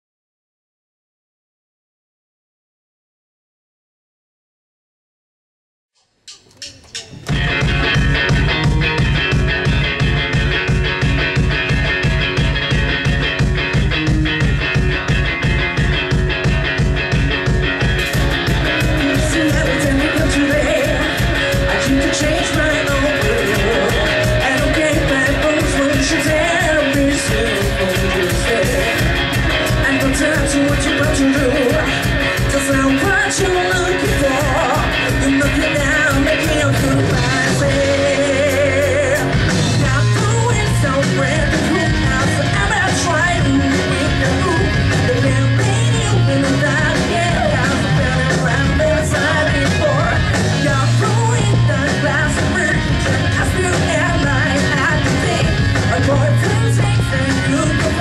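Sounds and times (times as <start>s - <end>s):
bass guitar: 6.3s - 58.0s
rock band playing: 6.3s - 58.0s
person singing: 18.0s - 58.0s.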